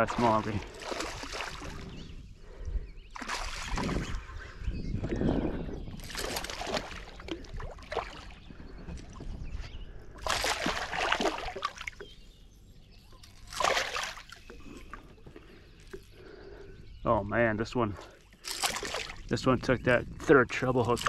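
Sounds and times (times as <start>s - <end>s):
fish thrashing and splashing: 0.0s - 2.0s, 3.1s - 4.4s, 5.9s - 8.4s, 10.2s - 12.1s, 13.2s - 16.5s, 18.1s - 19.3s.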